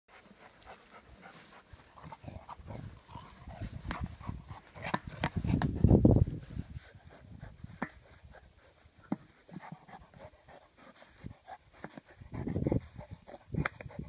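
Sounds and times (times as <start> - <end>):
dog worrying a tyre: 7.0 - 14.0.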